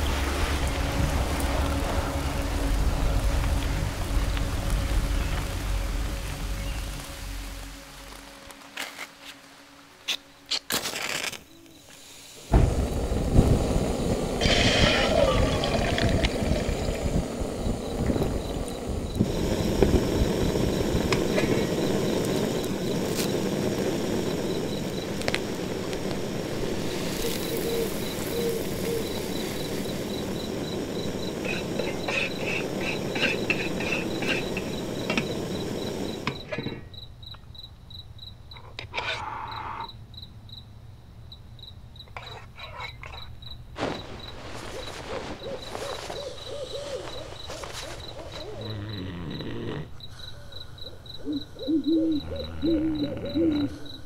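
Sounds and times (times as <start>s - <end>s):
cricket chirping: 0.0s - 54.0s
gas stove burner hissing: 11.7s - 36.9s
spoon scraping metal pot: 31.4s - 35.3s, 42.2s - 43.3s.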